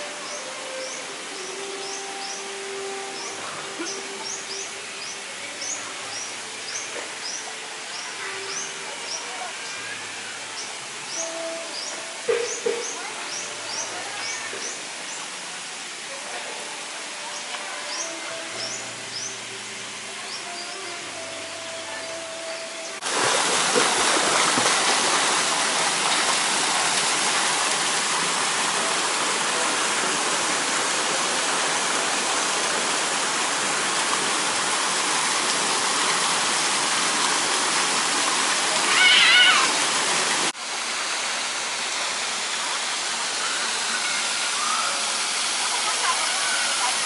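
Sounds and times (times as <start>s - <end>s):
water pouring and splashing: 23.0s - 47.0s.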